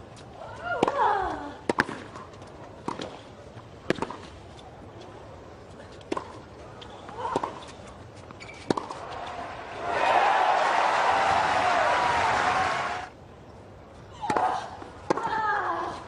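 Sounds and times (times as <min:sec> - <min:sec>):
rackets striking tennis ball: 0:08.4 - 0:10.0.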